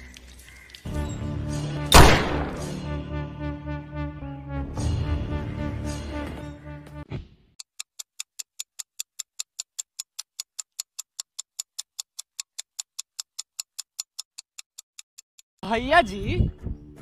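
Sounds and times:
background music: 0.8 - 7.2
clock ticking: 7.6 - 15.5.

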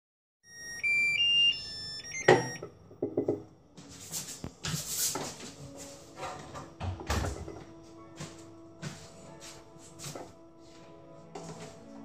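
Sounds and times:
electronic beeps tune: 0.5 - 2.6
rustling and clattering: 4.0 - 7.6.

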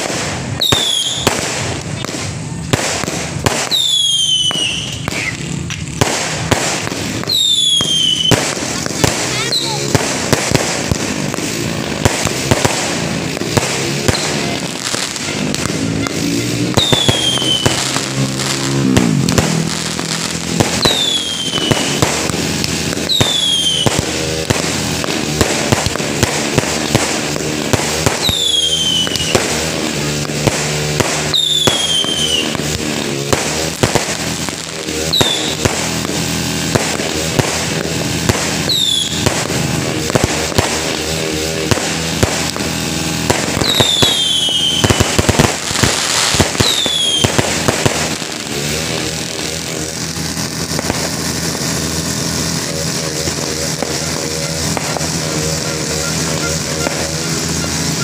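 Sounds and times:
whistling firework shell: 0.0 - 2.0, 3.6 - 5.8, 7.2 - 8.5, 15.2 - 19.6, 20.7 - 22.3, 23.0 - 24.2, 28.0 - 29.7, 31.2 - 32.6, 35.1 - 35.6, 38.5 - 39.5, 43.5 - 45.6, 46.4 - 47.4, 54.2 - 58.0
fireworks bangs and crackles: 0.0 - 58.0.

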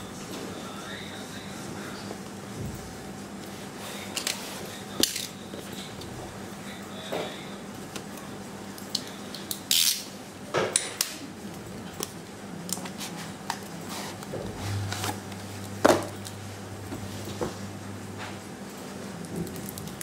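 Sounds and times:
cardboard scraping rubs: 12.9 - 15.2.

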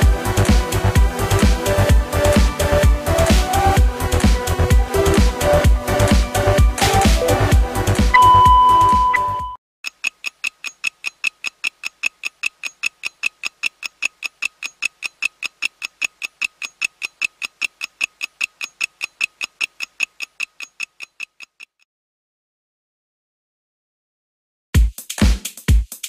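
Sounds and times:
clock ticking: 8.1 - 21.8.

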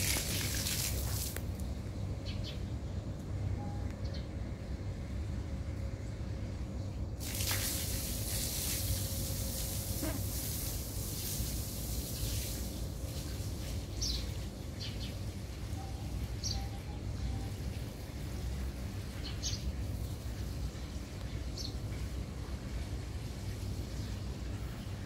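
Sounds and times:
high hiss: 7.2 - 12.8.

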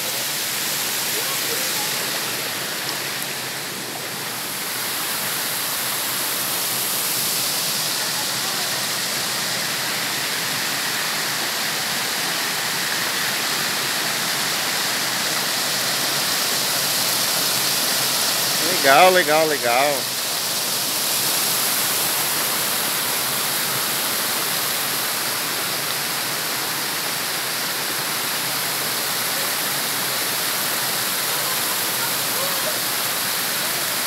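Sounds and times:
water rushing over rocks: 0.0 - 34.0.

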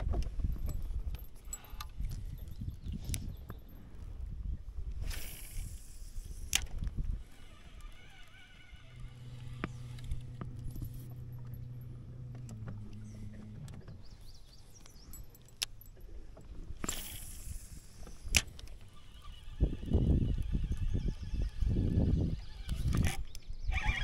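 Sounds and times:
low motor hum: 0.0 - 24.0
small clicks: 5.1 - 23.5.

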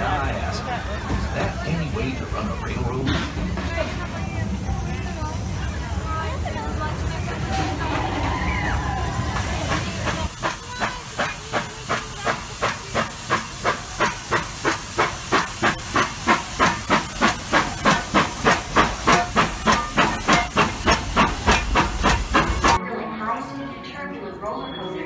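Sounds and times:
steam locomotive chuffing: 9.3 - 22.8.

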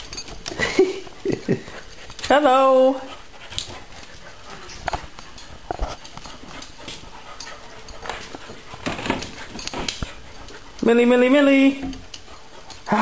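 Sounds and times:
dog claws clicking on tiles: 3.4 - 13.0.

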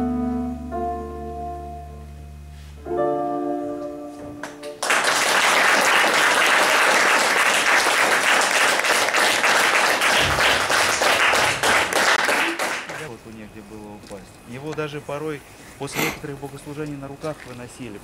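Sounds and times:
audience applause: 4.8 - 13.1.

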